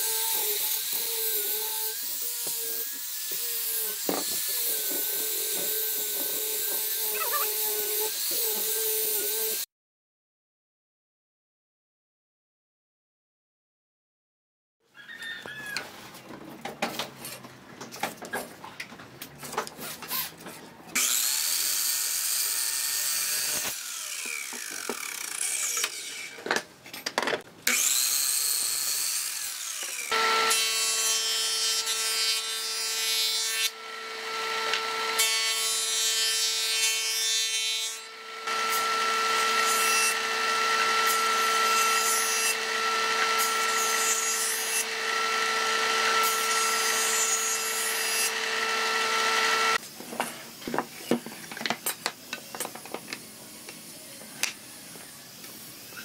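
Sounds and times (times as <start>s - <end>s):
miter saw cutting wood: 0.0s - 9.7s, 21.0s - 26.4s, 27.7s - 49.8s
jointer-planer high whine: 48.3s - 49.8s.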